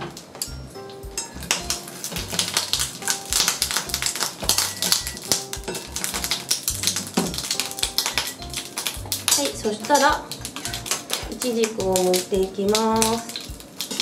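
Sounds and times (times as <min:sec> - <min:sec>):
light background music: 0:00.0 - 0:14.0
peppers crackling in frying pan: 0:00.0 - 0:14.0.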